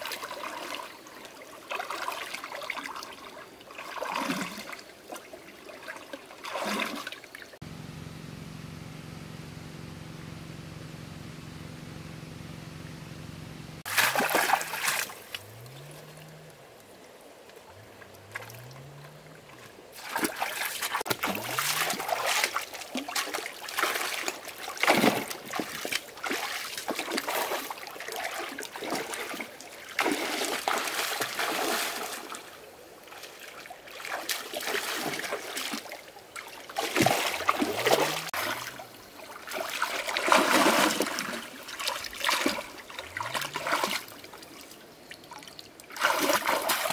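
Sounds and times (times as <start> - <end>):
water splashing: 0.0 - 7.6, 13.3 - 46.9
water trickling: 13.8 - 24.8, 36.4 - 46.9.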